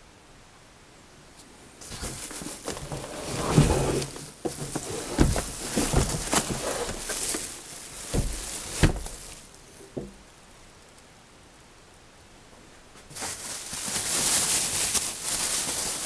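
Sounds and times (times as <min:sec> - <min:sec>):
cardboard scraping: 0:01.8 - 0:09.6
plastic wrapping crinkling: 0:01.8 - 0:10.2, 0:13.1 - 0:16.0.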